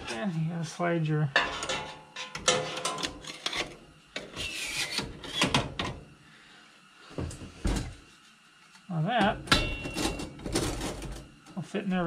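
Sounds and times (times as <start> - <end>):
metal parts scraping and clinking: 1.4 - 3.7.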